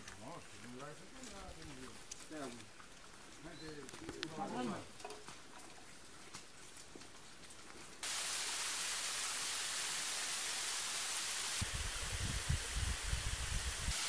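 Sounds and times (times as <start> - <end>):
water cascading down rock: 8.0 - 14.0.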